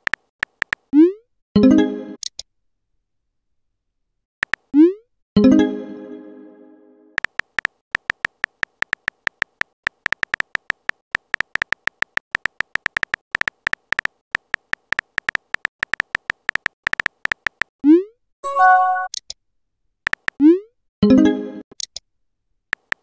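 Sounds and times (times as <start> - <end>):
phone keyboard typing clicks: 0.0 - 0.9, 4.4 - 4.7, 7.2 - 17.7, 20.1 - 20.4, 22.7 - 23.0
chime: 18.4 - 19.1.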